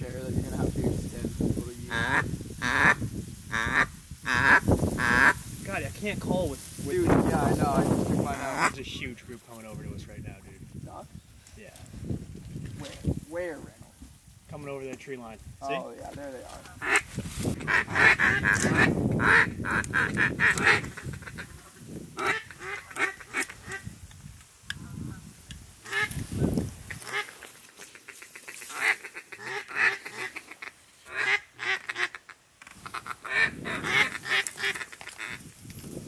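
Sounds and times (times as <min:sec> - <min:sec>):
duck quacking: 0:01.9 - 0:05.4, 0:16.8 - 0:23.9, 0:28.0 - 0:35.4.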